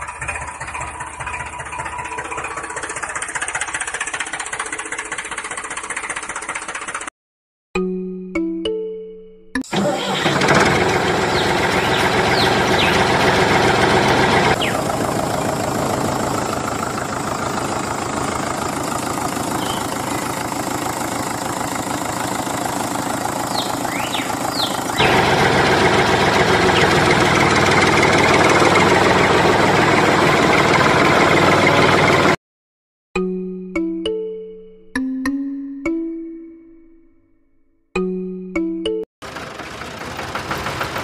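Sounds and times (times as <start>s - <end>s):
tractor engine running: 0.0s - 7.1s, 9.6s - 32.4s, 39.2s - 41.0s
short high chirps: 19.6s - 20.0s.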